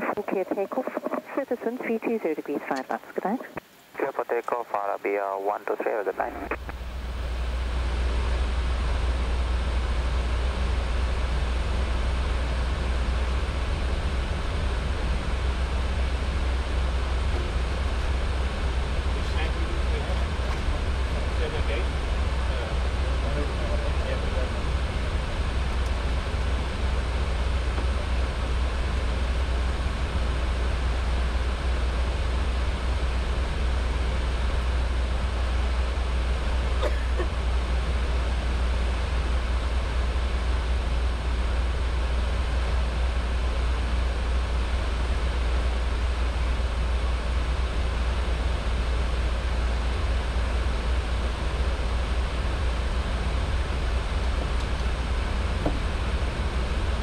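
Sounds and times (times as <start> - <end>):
airplane cabin engine roar: 0.0 - 3.4, 4.0 - 57.0.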